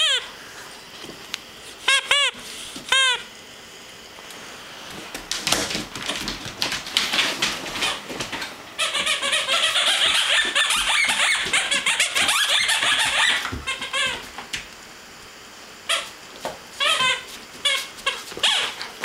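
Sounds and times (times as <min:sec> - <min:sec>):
squeaky toy squeaking: 0:08.8 - 0:14.2.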